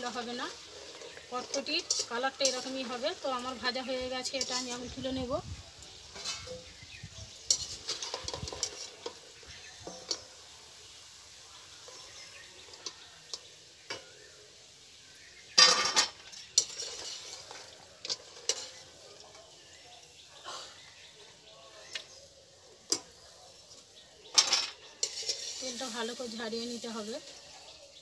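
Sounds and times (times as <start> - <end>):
metal skimmer scraping metal pan: 0.0 - 5.0, 6.1 - 6.8, 7.5 - 10.2, 15.6 - 19.4, 24.3 - 27.6
oil sizzling: 0.0 - 28.0.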